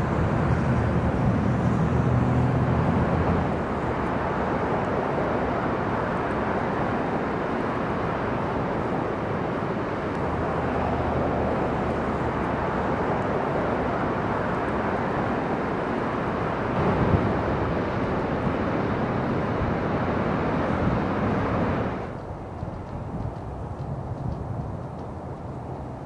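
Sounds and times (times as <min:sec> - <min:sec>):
waterfall rushing: 0:02.4 - 0:22.1.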